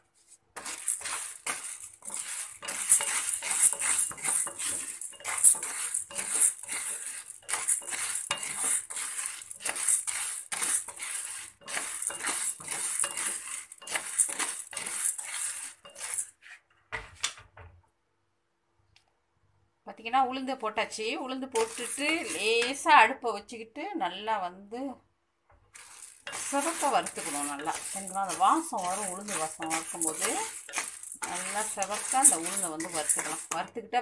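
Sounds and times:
beans rattling in steel pan: 0.6s - 16.3s, 21.5s - 22.8s, 25.7s - 33.8s.

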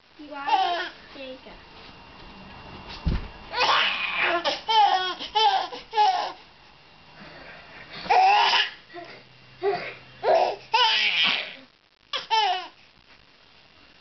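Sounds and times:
baby laughing: 12.2s - 12.7s.

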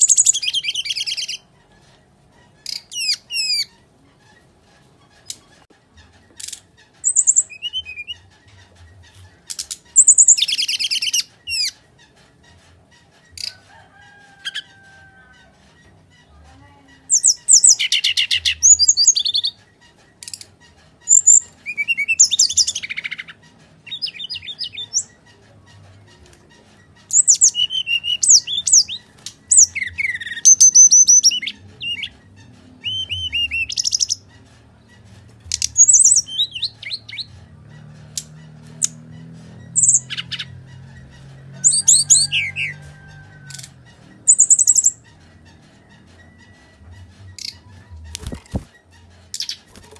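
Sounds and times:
bird chattering trills and whistles: 0.0s - 1.5s, 2.5s - 3.8s, 5.2s - 12.2s, 17.0s - 49.9s.

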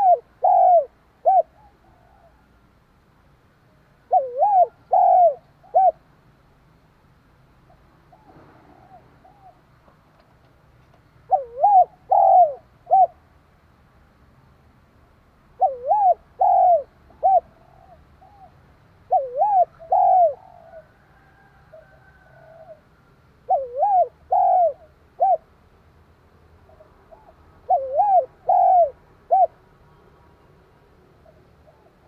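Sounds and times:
dove cooing: 0.0s - 2.5s, 4.1s - 6.0s, 7.7s - 9.8s, 11.3s - 13.2s, 15.6s - 25.5s, 26.7s - 29.6s, 31.2s - 32.0s.

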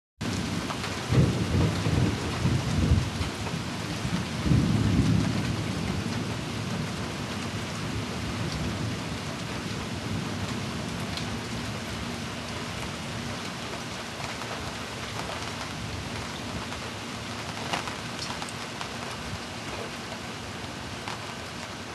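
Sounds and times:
thunder rumbling: 0.2s - 12.2s
steady rain: 0.2s - 21.9s.

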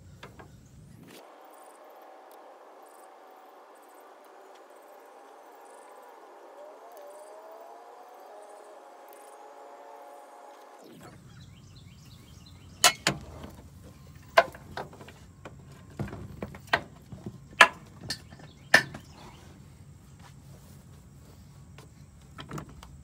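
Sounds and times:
metal clanks and knocks: 12.8s - 19.2s.

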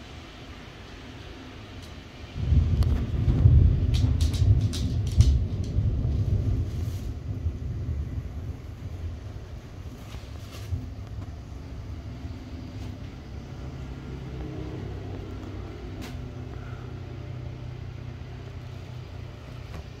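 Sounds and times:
storm wind rumble: 0.0s - 20.0s
quad bike engine passing: 11.6s - 19.4s.

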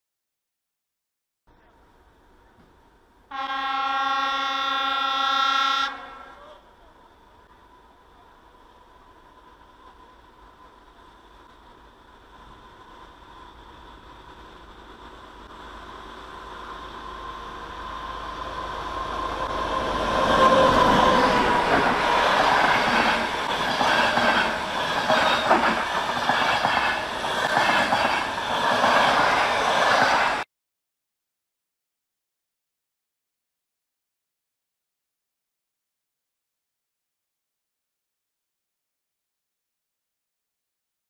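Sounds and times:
passenger train passing: 1.6s - 30.5s
train whine: 1.6s - 30.5s
wheels clacking on rails: 9.1s - 30.4s.

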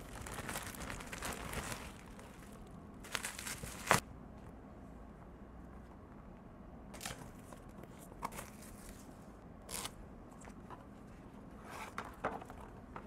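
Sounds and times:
plastic mailer bag crinkling: 0.0s - 4.0s.

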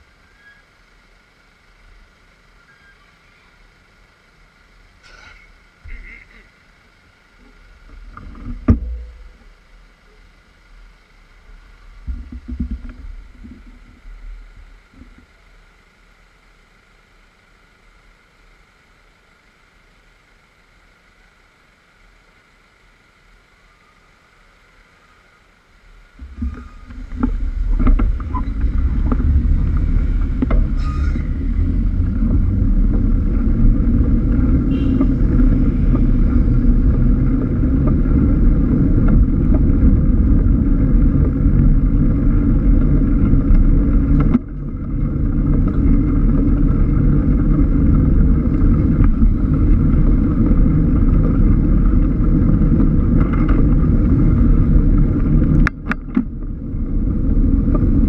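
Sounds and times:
bike road noise: 0.0s - 58.0s
wind noise on microphone: 26.2s - 58.0s.

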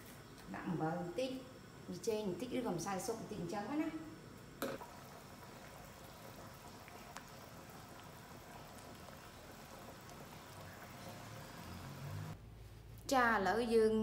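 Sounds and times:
water bubbling in a pot: 4.7s - 12.4s.

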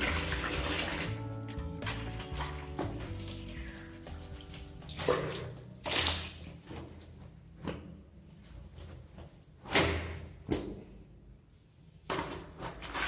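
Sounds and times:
wet cloth sloshing and squelching: 0.0s - 7.7s
water splashing: 1.8s - 6.6s.

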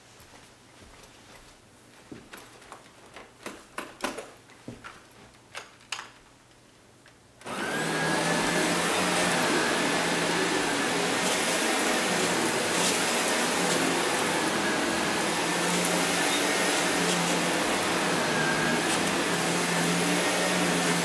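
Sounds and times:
vacuum cleaner running on carpet: 7.4s - 21.0s.

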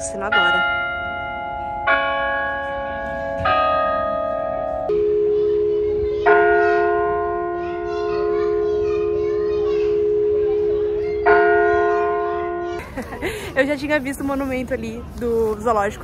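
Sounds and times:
clock bells playing slow tune: 0.3s - 12.8s.

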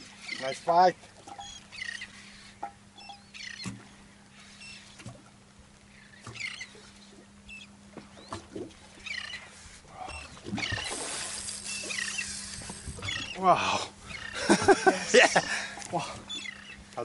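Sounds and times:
birds chirping: 0.0s - 5.1s, 5.7s - 17.0s
fish splashing in water: 10.0s - 13.3s.

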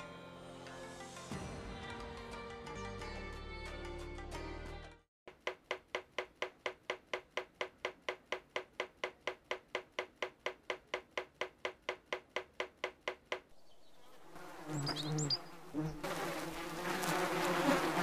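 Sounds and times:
rapid sharp taps: 5.3s - 13.5s.

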